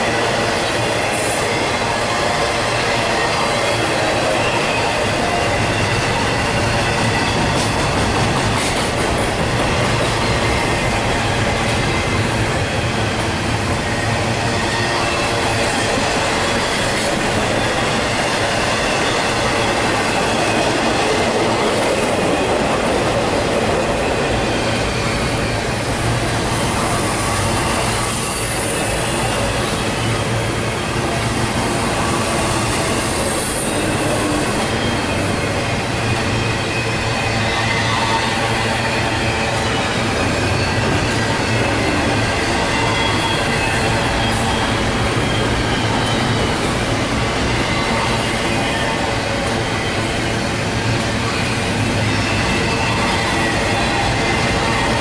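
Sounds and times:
freight train wheels rumbling on rail: 0.0 - 55.0
high wheel squeal: 13.9 - 55.0.

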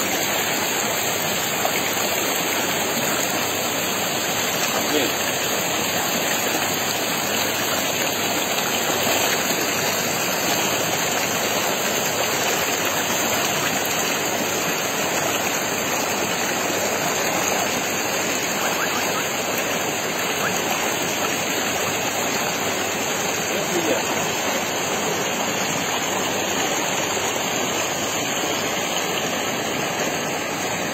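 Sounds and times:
water rushing over rocks: 0.0 - 30.9.

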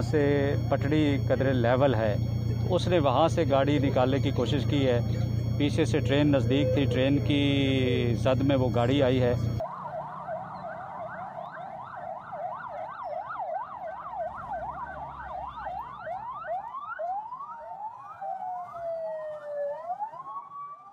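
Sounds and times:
ambulance siren yelping and wailing: 0.0 - 20.9.

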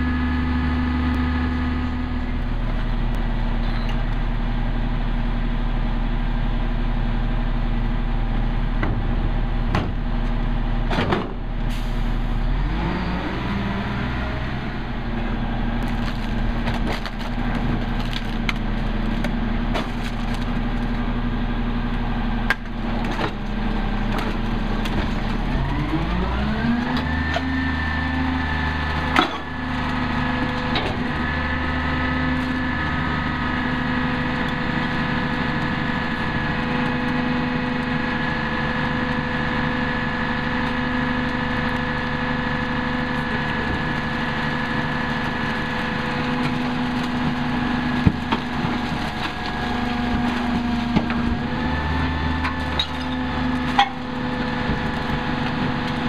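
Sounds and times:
truck diesel engine: 0.0 - 56.0.

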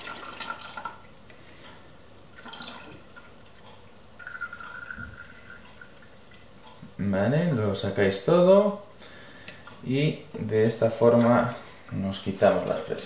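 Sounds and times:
liquid trickling through strainer: 0.0 - 1.2, 2.3 - 7.0.

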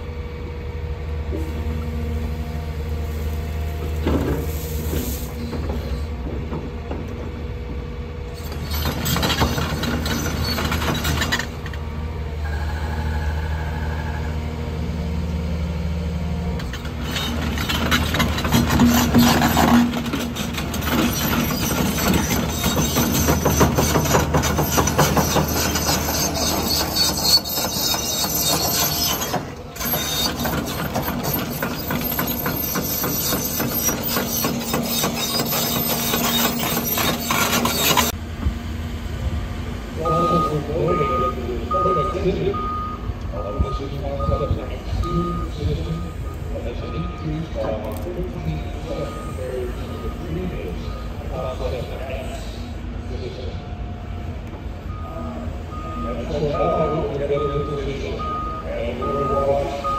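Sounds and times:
excavator engine and hydraulics: 0.0 - 59.9
metal clanks: 16.6 - 38.2.

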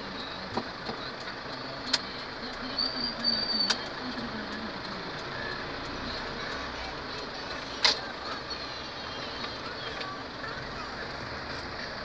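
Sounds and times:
vehicle cabin noise: 0.0 - 12.0.

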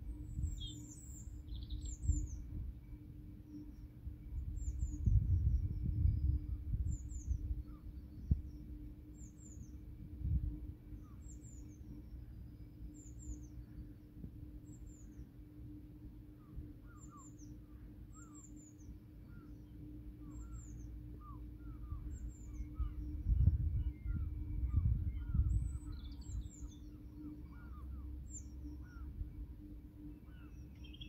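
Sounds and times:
small birds chirping: 0.0 - 10.1, 10.9 - 15.7, 16.3 - 31.0
low rumble: 20.6 - 29.9.

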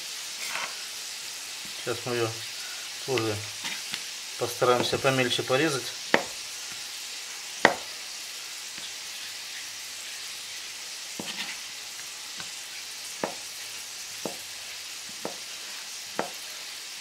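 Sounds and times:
vegetables sizzling in a pan: 0.0 - 17.0
knife knocking on cutting board: 6.1 - 6.4, 7.6 - 7.9, 13.2 - 13.5, 14.2 - 14.4, 15.2 - 15.4, 16.2 - 16.4.

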